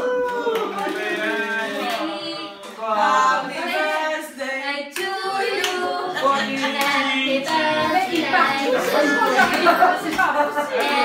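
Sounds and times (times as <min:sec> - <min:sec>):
hand claps: 0:00.0 - 0:01.2, 0:09.3 - 0:11.0
group singing a birthday song: 0:00.0 - 0:11.0.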